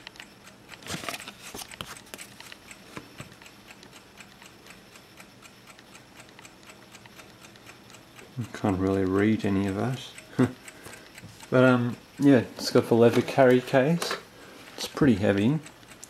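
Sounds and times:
clock ticking quickly: 0.0s - 0.8s, 1.7s - 13.9s, 14.8s - 16.0s
paper rustling: 0.8s - 2.4s.

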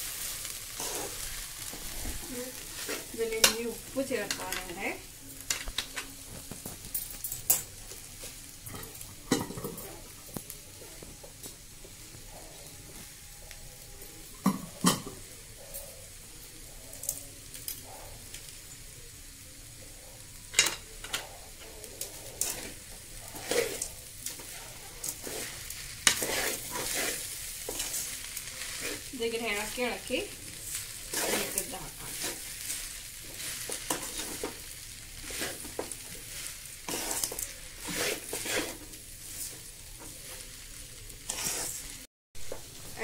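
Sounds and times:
metal spatula scraping: 0.0s - 6.3s, 20.6s - 42.1s
food sizzling in a pan: 0.0s - 43.0s.

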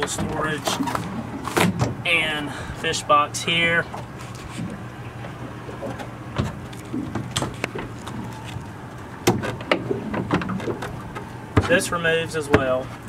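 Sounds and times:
low hum: 0.0s - 13.0s
boat hatch clicks and knocks: 9.2s - 11.9s, 12.5s - 12.8s.

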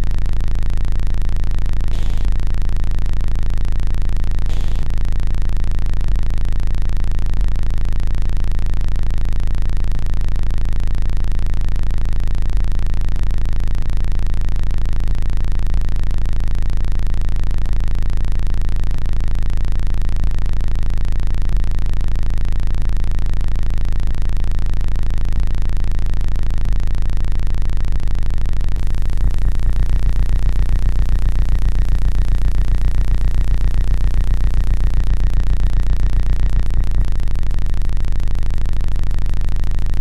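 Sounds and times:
soft bass pulses: 0.0s - 10.7s, 19.0s - 40.0s
low electronic drone: 1.7s - 5.9s, 26.5s - 40.0s
faint crackle: 1.9s - 2.6s, 4.4s - 5.2s.

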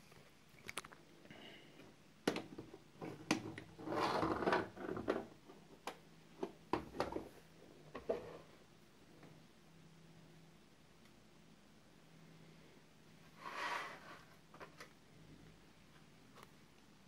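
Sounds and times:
short rustling scrape: 13.3s - 14.4s.

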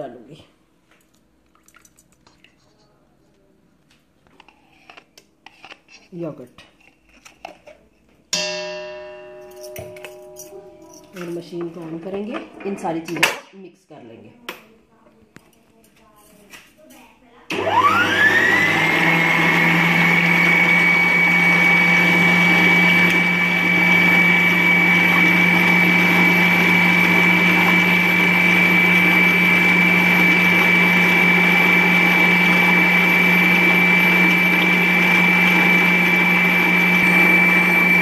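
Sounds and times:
stand mixer motor whine: 17.5s - 38.0s.

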